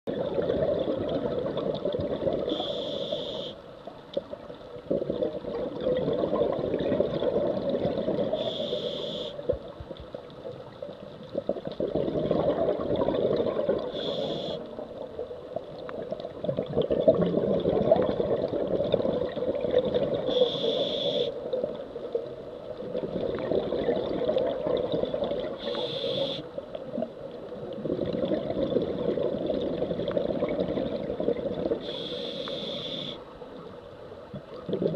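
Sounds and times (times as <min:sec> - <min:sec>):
exhaled air bubbling: 0:00.1 - 0:03.5, 0:04.1 - 0:33.2, 0:34.2 - 0:34.9
regulator hissing on inhale: 0:02.4 - 0:03.6, 0:08.3 - 0:09.5, 0:13.8 - 0:14.8, 0:20.2 - 0:21.4, 0:25.5 - 0:26.6, 0:31.8 - 0:33.3.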